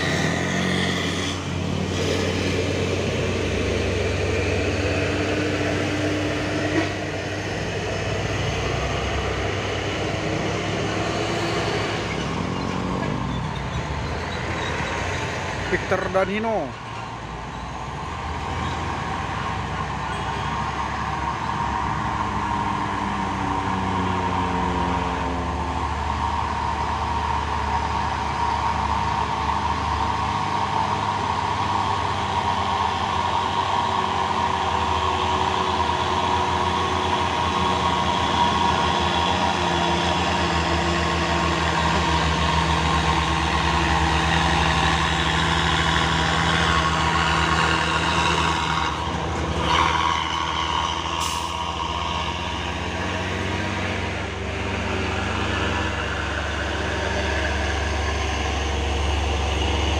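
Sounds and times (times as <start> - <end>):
diesel trucks passing: 0.0 - 59.9.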